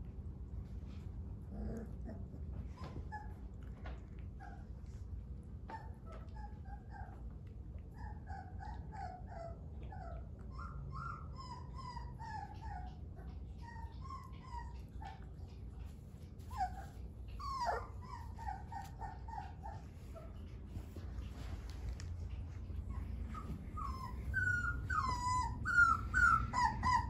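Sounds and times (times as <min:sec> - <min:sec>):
puppy yelp: 0:01.6 - 0:03.5, 0:05.7 - 0:07.2, 0:08.0 - 0:20.5, 0:22.8 - 0:27.0
puppies whimpering: 0:08.0 - 0:21.5, 0:22.1 - 0:27.0.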